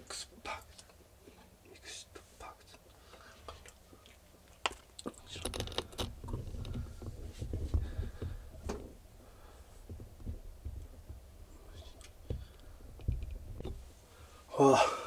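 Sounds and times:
dull handling bumps: 0:05.2 - 0:14.2.

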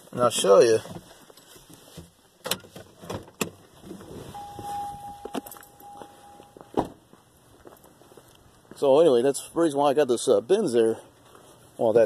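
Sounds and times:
rustling and handling noise: 0:00.0 - 0:06.8, 0:11.1 - 0:12.0
steady single-pitched tone: 0:04.3 - 0:06.9.

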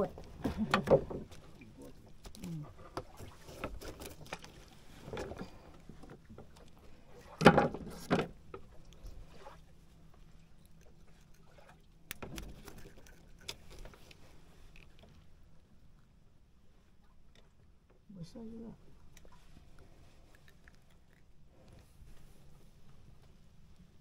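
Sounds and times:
fish handling clicks and rustles: 0:00.0 - 0:15.6.

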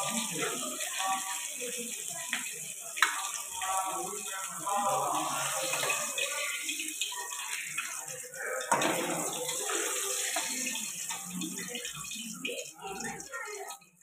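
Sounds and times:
fish sizzling in hot oil: 0:00.0 - 0:14.0.

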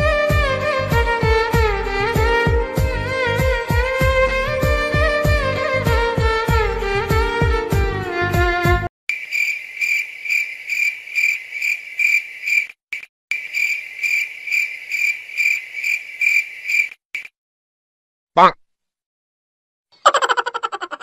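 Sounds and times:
music: 0:00.0 - 0:08.9
crickets chirping: 0:09.1 - 0:17.3.

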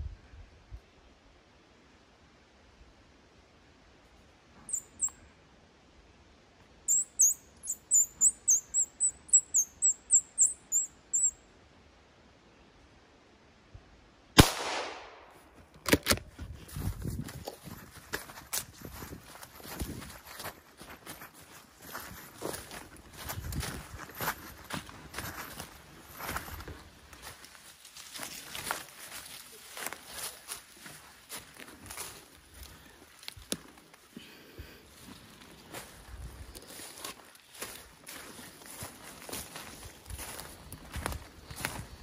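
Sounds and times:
bird chirping: 0:04.7 - 0:05.2, 0:06.9 - 0:11.4
gunshot with echo: 0:14.4 - 0:15.4
rustling footsteps: 0:15.4 - 0:42.0.

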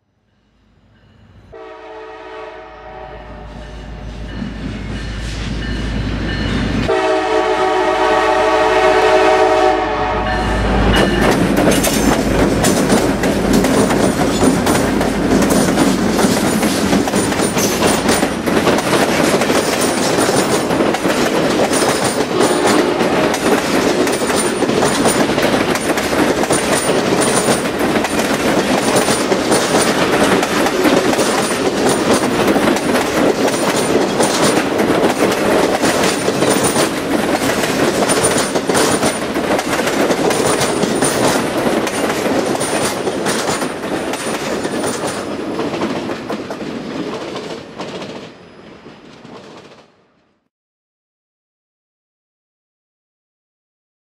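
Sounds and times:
train passing rumble: 0:00.2 - 0:50.2
locomotive air horn: 0:01.5 - 0:04.3, 0:06.9 - 0:11.0, 0:22.3 - 0:23.4
wheels clicking over rail joints: 0:11.0 - 0:48.3.

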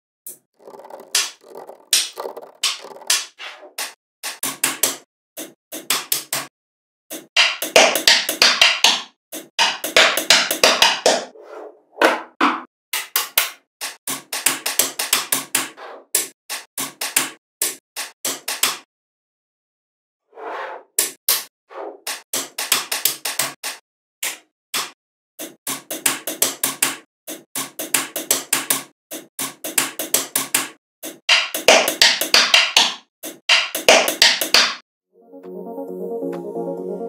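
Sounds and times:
magnetic balls clicking together: 0:00.6 - 0:03.2.

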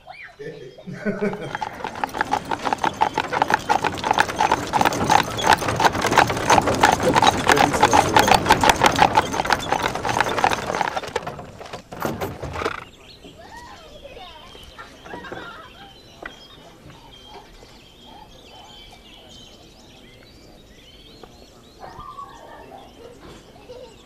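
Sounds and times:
horse hooves clip-clopping on pavement: 0:01.1 - 0:13.6.

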